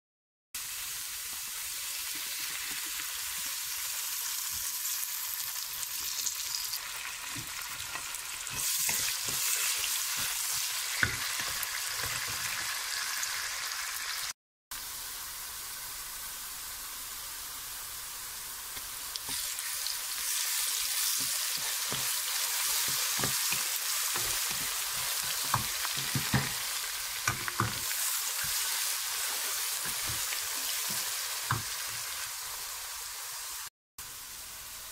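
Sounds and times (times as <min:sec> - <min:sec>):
onions sizzling in oil: 0:00.6 - 0:34.9
stirring knocks and scrapes: 0:07.3 - 0:12.5, 0:21.2 - 0:28.7, 0:29.7 - 0:32.1.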